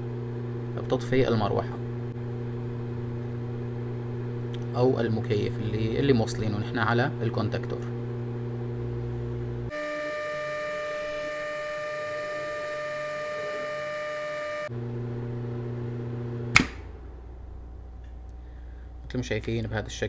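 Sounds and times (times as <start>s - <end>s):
higher-pitched hum: 0.0s - 19.2s
cooling fan with mains hum: 0.0s - 20.0s
contactor click: 16.5s - 16.9s.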